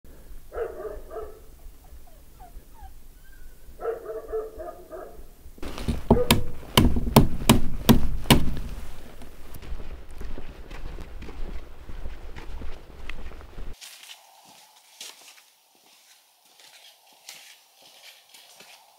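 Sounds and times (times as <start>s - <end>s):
animal calls: 0.6s - 5.2s
loud sharp knocks: 5.6s - 8.8s.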